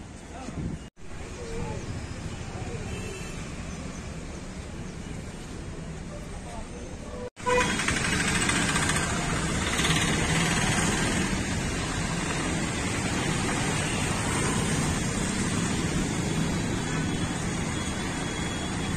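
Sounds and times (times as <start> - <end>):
motorcycles passing: 7.6 - 18.9.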